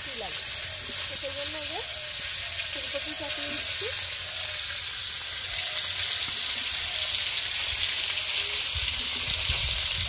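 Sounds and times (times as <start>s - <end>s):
vegetables sizzling in hot oil: 0.0s - 10.0s.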